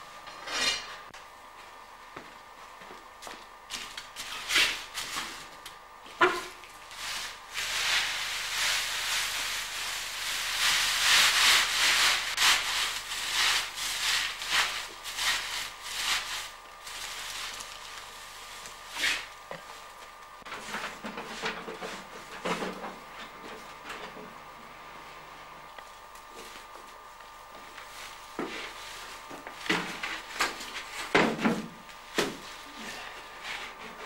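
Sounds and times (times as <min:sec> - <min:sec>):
wood shavings rustling: 0:06.7 - 0:20.2.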